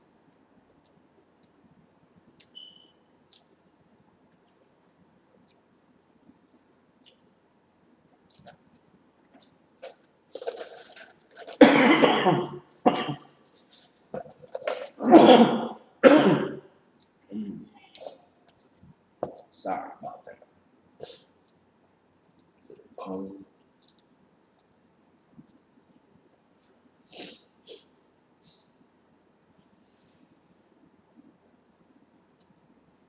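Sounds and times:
man coughing: 0:11.6 - 0:13.3, 0:15.0 - 0:16.6.

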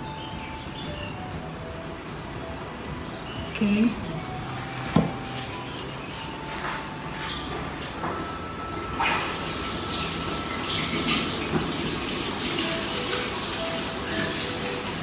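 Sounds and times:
running water: 0:09.0 - 0:15.0.

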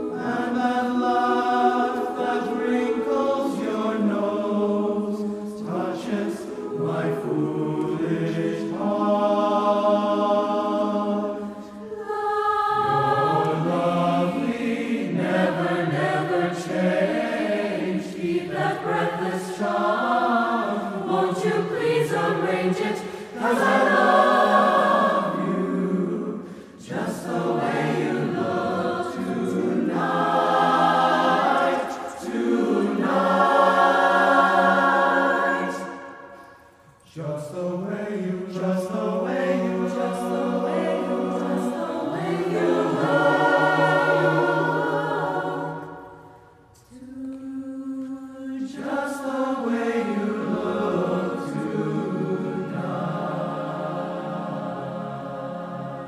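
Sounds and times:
mixed choir singing in harmony: 0:00.0 - 0:56.0.

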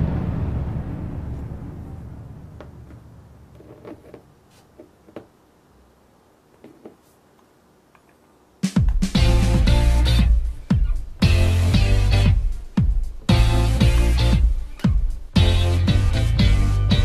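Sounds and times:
upbeat music with guitar: 0:08.8 - 0:17.0.

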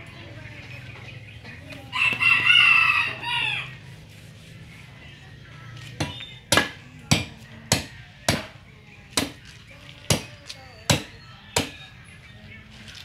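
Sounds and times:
rooster crowing: 0:01.9 - 0:03.8
machete chopping coconut husk: 0:06.0 - 0:09.4, 0:10.1 - 0:10.3, 0:10.9 - 0:11.8.

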